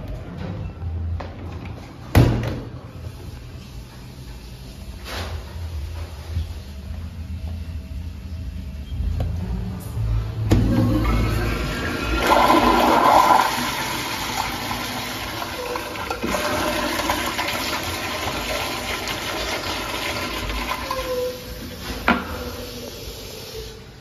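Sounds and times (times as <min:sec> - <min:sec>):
toilet flushing water rush: 0:10.5 - 0:23.3.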